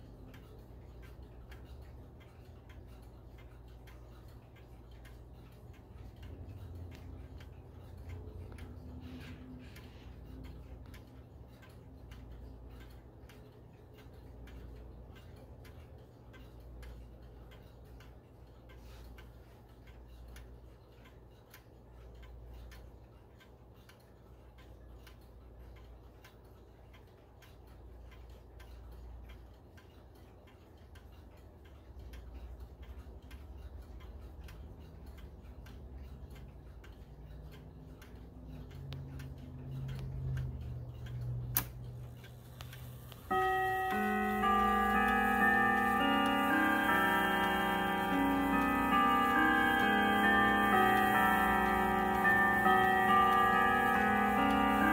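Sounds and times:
wall clock ticking: 0.0 - 54.9
clock sharp click: 25.8 - 54.9.

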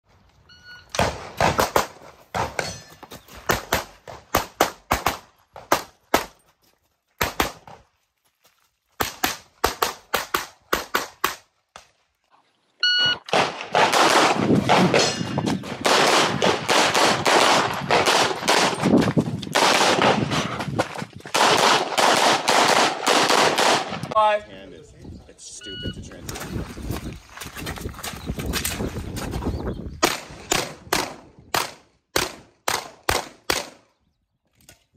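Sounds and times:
shot timer beep: 12.8 - 13.2
rapid pistol fire: 13.3 - 15.0, 15.8 - 18.9, 19.6 - 20.3, 21.4 - 24.0.

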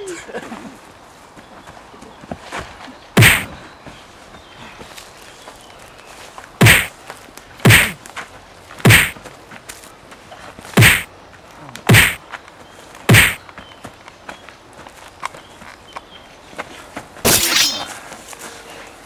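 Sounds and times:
punch sound effect whacks: 3.2 - 3.5, 6.6 - 6.9, 7.6 - 8.0, 8.8 - 9.2, 10.8 - 11.1, 11.9 - 12.2, 13.1 - 13.4.

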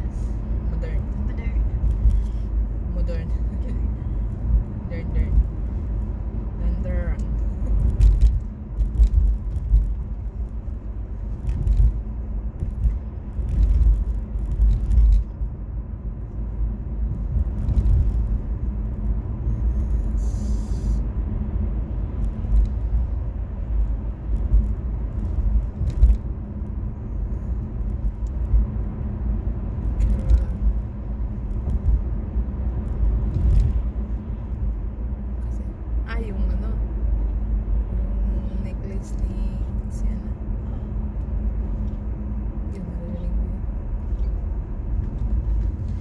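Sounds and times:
car engine and road noise: 0.0 - 46.0.

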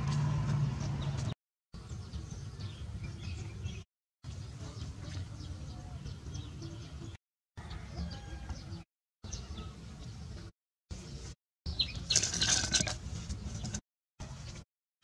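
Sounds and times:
dry branch dragged on dirt: 12.1 - 13.8.

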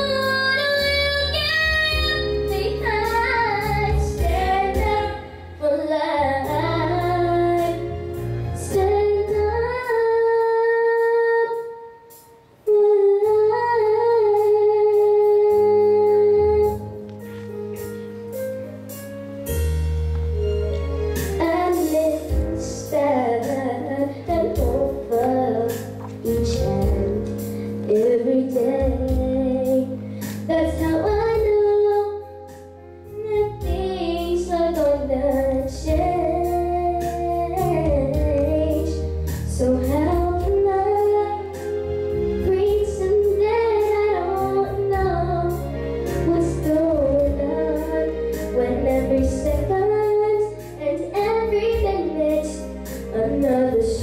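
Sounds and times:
girl singing into microphone: 0.0 - 17.5, 21.3 - 41.8, 42.4 - 54.0
backing track with bass and beat: 15.4 - 23.7.

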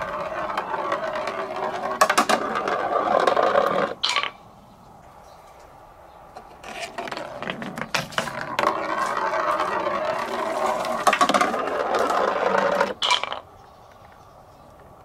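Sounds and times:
ball clicking over plastic track: 0.0 - 4.4.

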